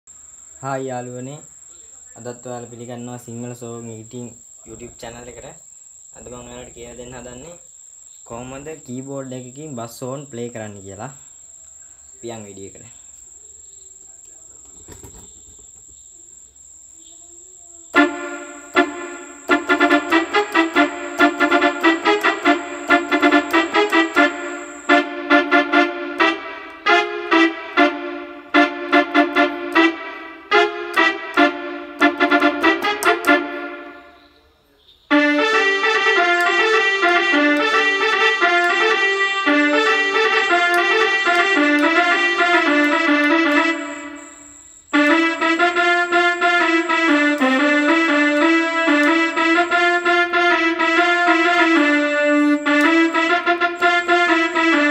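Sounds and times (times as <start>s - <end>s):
faint high whine: 0.1s - 32.5s, 33.1s - 54.9s
electronic keyboard horn tune: 17.9s - 34.4s, 35.1s - 54.9s.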